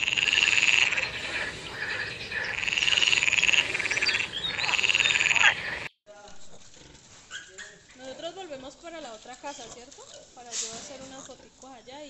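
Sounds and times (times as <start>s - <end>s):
frog croaking: 0.0s - 5.9s.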